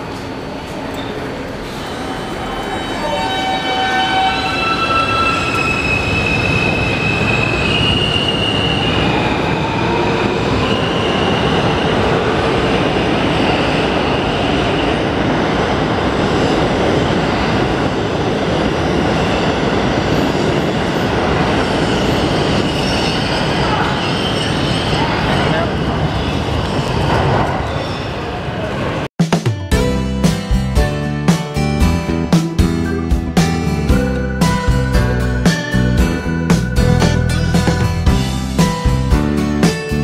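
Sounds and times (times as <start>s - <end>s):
rumble of wheels on rail: 0.0s - 29.1s
subway train whine: 0.0s - 29.1s, 29.8s - 40.0s.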